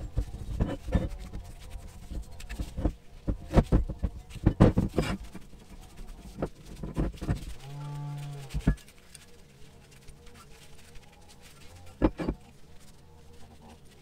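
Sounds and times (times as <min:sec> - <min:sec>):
metal parts knocking on mat: 0:02.1 - 0:05.4, 0:12.0 - 0:12.4.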